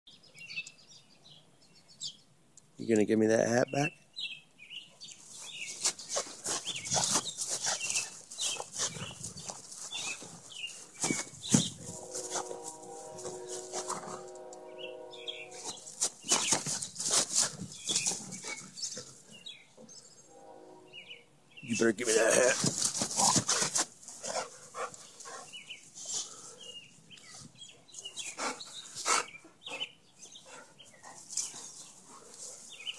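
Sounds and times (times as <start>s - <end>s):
bird chirps: 0.1s - 2.3s, 3.6s - 17.1s, 17.7s - 21.9s, 24.9s - 32.9s
running footfalls on grass: 5.4s - 14.3s, 15.6s - 18.7s, 22.3s - 24.4s
steady hum: 11.7s - 15.9s.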